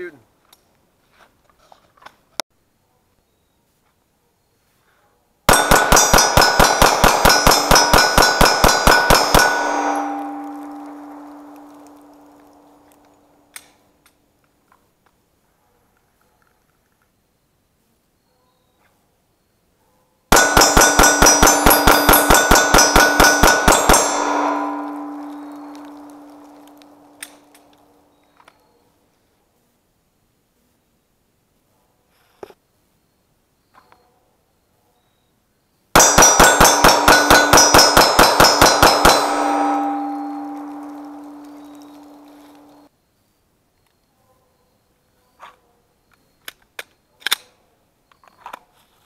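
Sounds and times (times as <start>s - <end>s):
steel targets clanging: 5.5s - 12.6s, 20.3s - 27.6s, 36.0s - 42.9s
pistol shots: 5.5s - 12.9s, 20.3s - 27.6s, 36.0s - 42.8s
gunshot echo: 5.5s - 13.0s, 20.3s - 27.6s, 36.0s - 42.8s
steel plate ringing: 5.5s - 13.0s, 20.3s - 27.6s, 36.0s - 42.9s.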